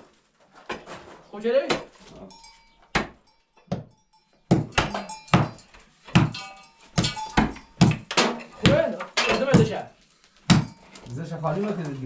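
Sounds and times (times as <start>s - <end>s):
pickaxe and hammer knocking rubble: 2.9s - 10.9s.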